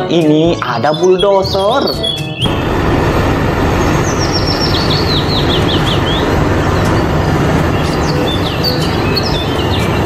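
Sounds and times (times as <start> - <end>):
bird chirping: 0.6 - 2.6, 3.8 - 10.0
bulldozer diesel engines droning: 2.5 - 10.0.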